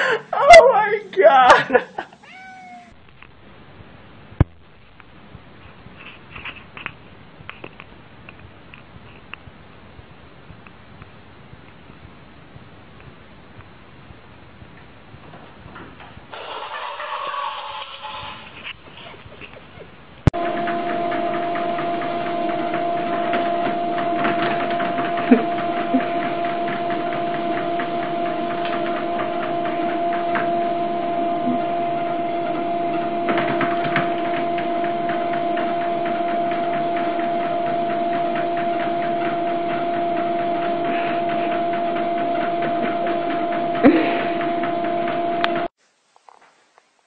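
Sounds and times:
machine hum: 20.2s - 47.0s.

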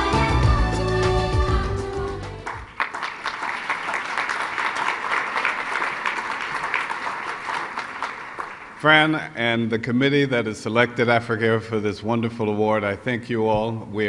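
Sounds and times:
music chords: 0.0s - 2.6s
audience applauding: 2.2s - 8.9s.

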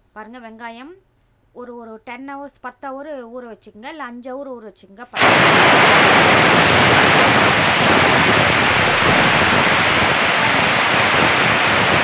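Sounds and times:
pressure cooker steam hiss: 5.2s - 12.0s.

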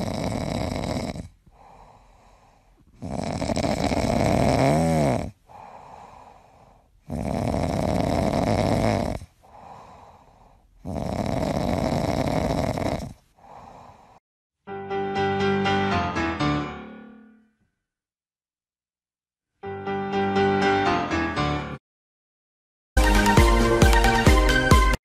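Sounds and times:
dog snoring: 0.0s - 14.2s.

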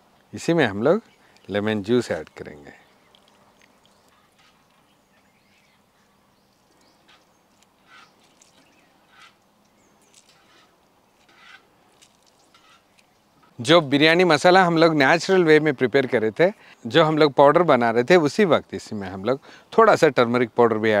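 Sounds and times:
faint short bird calls: 2.7s - 13.0s.

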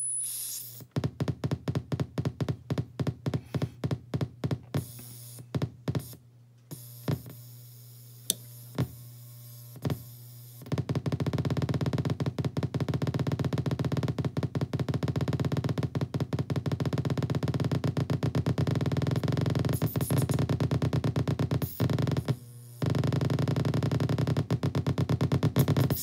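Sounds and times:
hiss: 0.2s - 0.8s
rapid stuttering electronic buzz: 12.8s - 26.0s.

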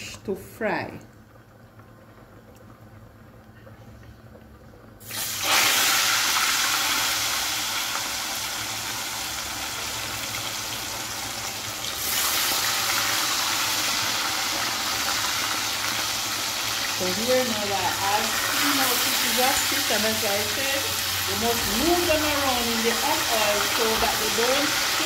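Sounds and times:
fish sizzling in hot oil: 5.0s - 25.0s.

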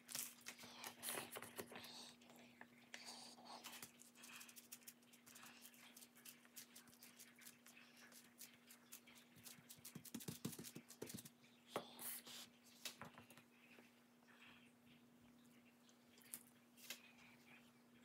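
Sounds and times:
sticky taps of hands on rice: 9.4s - 11.3s.

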